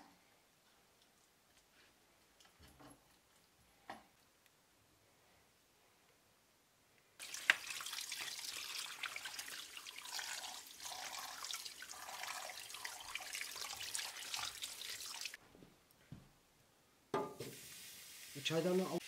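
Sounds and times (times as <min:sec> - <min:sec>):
tap water splashing: 0:07.2 - 0:15.4.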